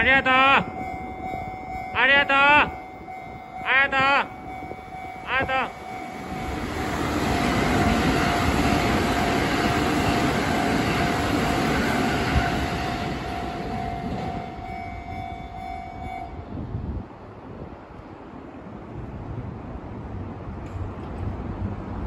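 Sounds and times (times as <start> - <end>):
level crossing warning alarm: 0.0 - 16.5
train passing over rail joints: 0.0 - 22.0.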